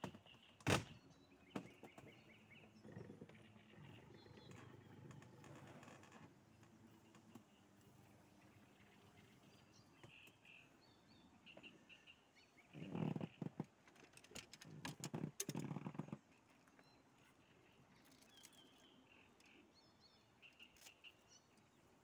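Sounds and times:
bird chirps: 0.0s - 5.6s, 6.8s - 13.5s, 15.6s - 21.8s.

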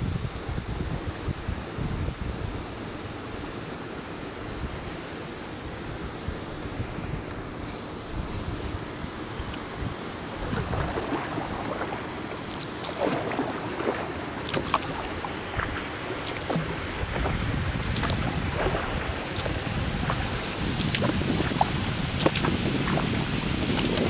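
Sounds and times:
sea water washing: 0.0s - 24.0s
wind rumble on microphone: 0.0s - 24.0s
water splashing and dripping: 10.3s - 24.0s.

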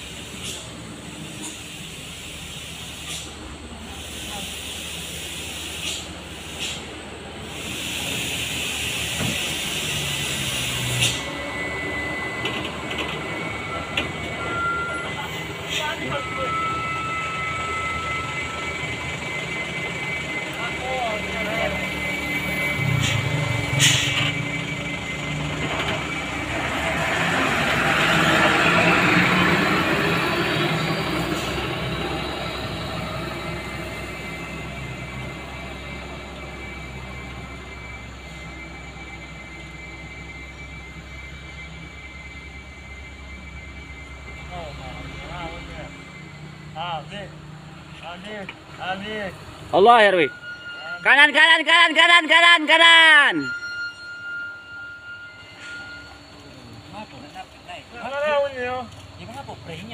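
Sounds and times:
truck diesel engine pulling uphill: 0.0s - 51.4s
diesel truck engine running: 17.5s - 39.0s.

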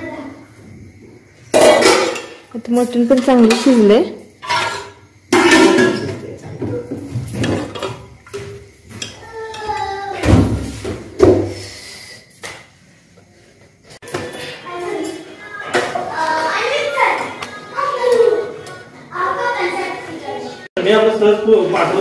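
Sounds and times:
pots and utensils clattering: 1.5s - 11.7s.

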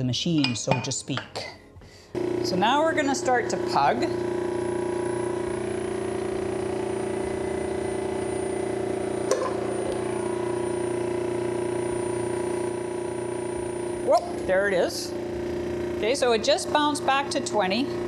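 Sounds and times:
electric motor humming: 2.1s - 18.0s.

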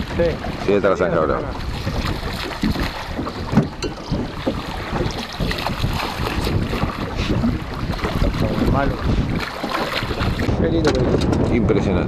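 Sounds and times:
wind buffeting microphone: 0.0s - 12.0s
fish splashing at water surface: 1.6s - 10.6s.

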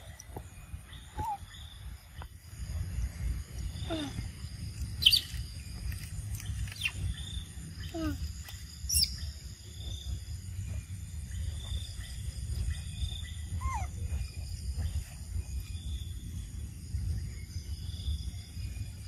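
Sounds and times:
low rumble: 0.0s - 19.0s
macaque calls: 13.6s - 14.0s.

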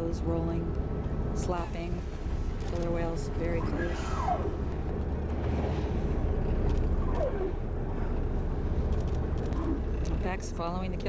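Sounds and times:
boat engine rumbling: 0.0s - 11.0s
wind and sea noise: 0.0s - 11.0s.

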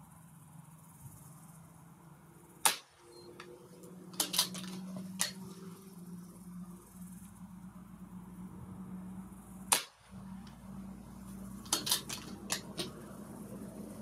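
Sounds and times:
air rifle shot: 2.6s - 3.1s, 9.7s - 10.1s.

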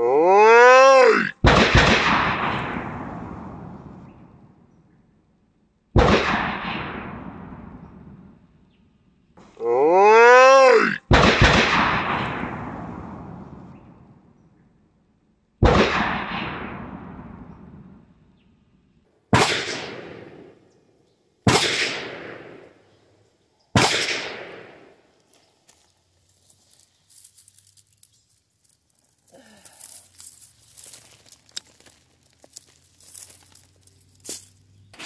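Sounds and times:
rifle shots with echo: 1.4s - 4.2s, 6.0s - 8.2s, 11.1s - 14.0s, 15.6s - 18.0s, 19.3s - 20.8s, 21.4s - 25.2s
dry leaves rustling and crackling: 25.2s - 35.0s.

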